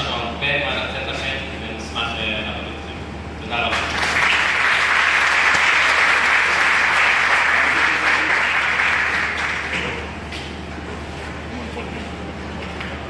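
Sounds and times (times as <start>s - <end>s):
audience applauding: 3.7s - 10.1s.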